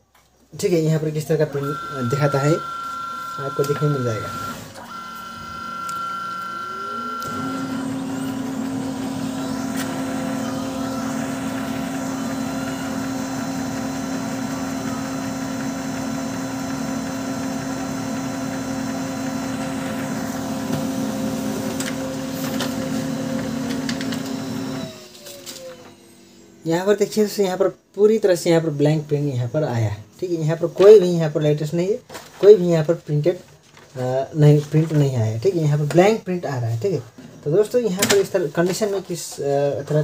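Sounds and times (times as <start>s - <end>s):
printer motors whining and humming: 1.1s - 27.8s
printer clicks: 1.6s - 16.4s, 21.6s - 24.9s.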